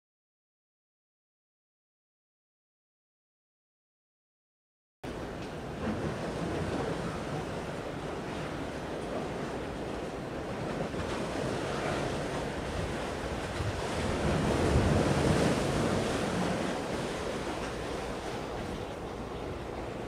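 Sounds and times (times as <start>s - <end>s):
sea: 5.0s - 20.0s
wind on microphone: 5.8s - 20.0s.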